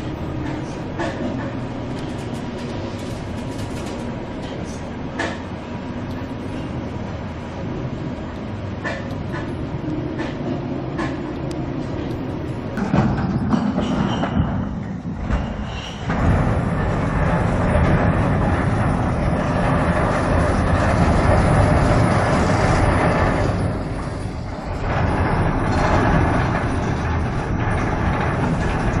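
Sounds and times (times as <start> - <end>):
steel structure collapsing rumble: 12.4 - 29.0.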